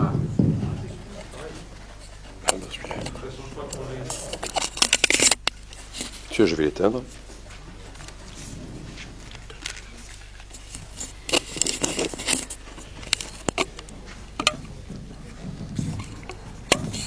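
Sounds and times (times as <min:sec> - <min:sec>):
low electrical hum: 0:00.0 - 0:17.0
microphone handling clicks and rustles: 0:00.4 - 0:17.0
sharp microphone clicks: 0:07.1 - 0:17.0.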